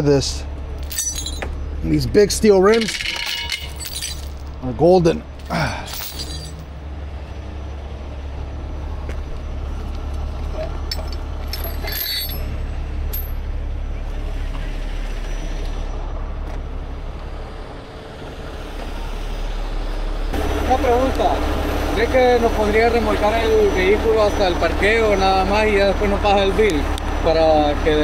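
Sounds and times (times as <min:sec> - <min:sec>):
diesel engine idling: 0:00.0 - 0:28.0.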